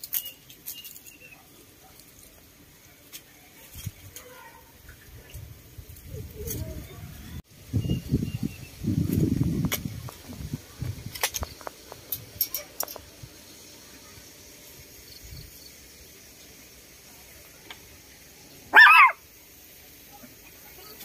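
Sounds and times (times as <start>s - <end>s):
animal call: 18.7s - 19.2s.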